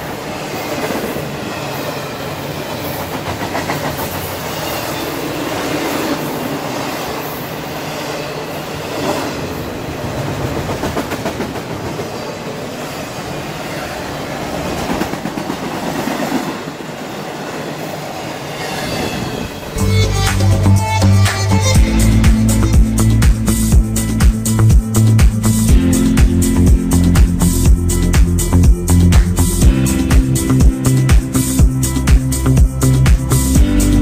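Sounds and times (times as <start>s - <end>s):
steel wheels on rails: 0.0s - 19.8s
music: 19.7s - 34.0s.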